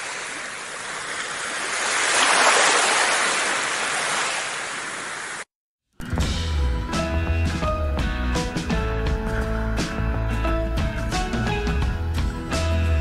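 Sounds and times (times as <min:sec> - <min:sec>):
ocean waves washing on beach: 0:00.0 - 0:05.5.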